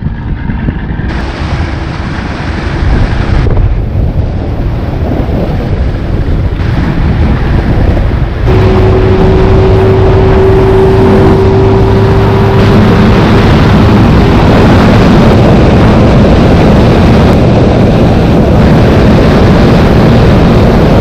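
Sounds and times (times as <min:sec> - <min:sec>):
water rushing along hull: 0:00.0 - 0:21.0
wind buffeting microphone: 0:00.0 - 0:21.0
outboard motor running: 0:05.9 - 0:21.0.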